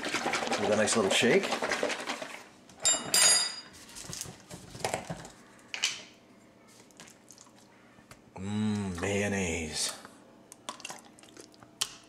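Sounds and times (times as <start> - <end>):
ringing glass clinks: 2.8 - 3.7.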